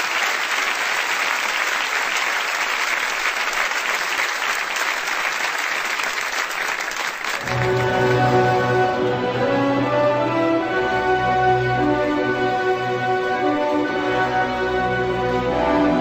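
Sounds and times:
large audience applauding: 0.0 - 9.1.

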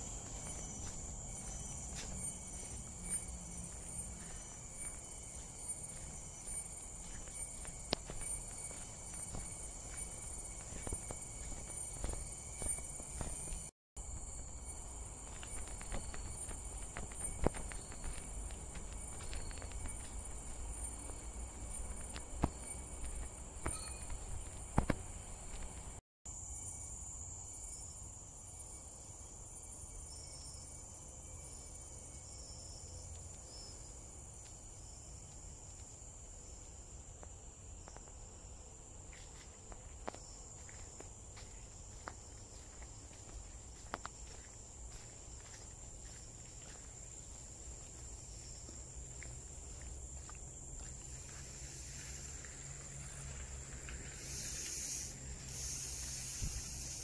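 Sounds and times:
footsteps on trail: 0.0 - 26.0, 38.9 - 57.0
high-pitched insect chorus: 0.0 - 57.0
loud hissing buzz: 54.0 - 57.0.

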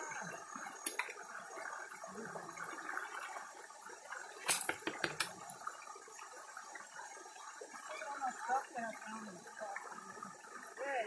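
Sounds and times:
stones and gravel clicking: 4.4 - 5.4.

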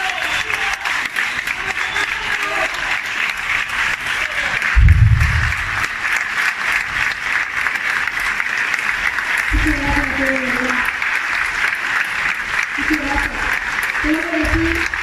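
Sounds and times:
audience applauding: 0.0 - 15.0
low rumble: 4.8 - 5.9.

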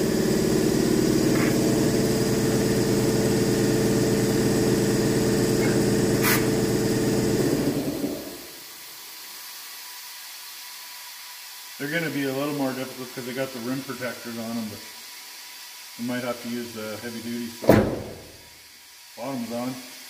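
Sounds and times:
electric motor humming: 0.0 - 8.6.

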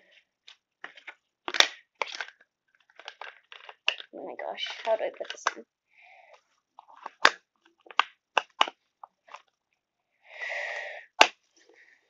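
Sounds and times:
plastic clicks and snaps: 0.5 - 5.6, 6.9 - 9.5.

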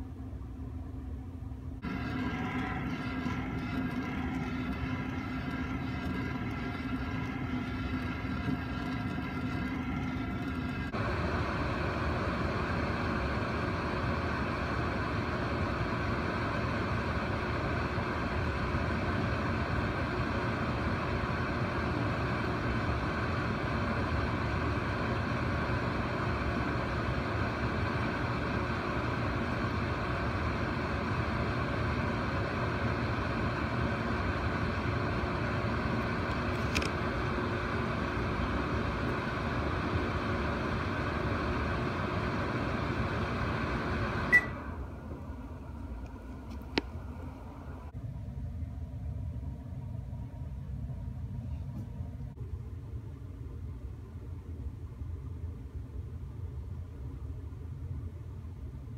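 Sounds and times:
microwave oven humming: 0.0 - 58.9
torch flame on glass: 1.8 - 20.6.

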